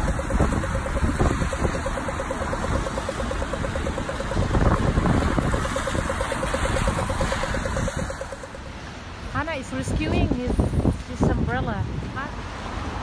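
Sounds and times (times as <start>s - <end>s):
fast even ticking: 0.0s - 8.8s
wind buffeting microphone: 0.0s - 8.8s.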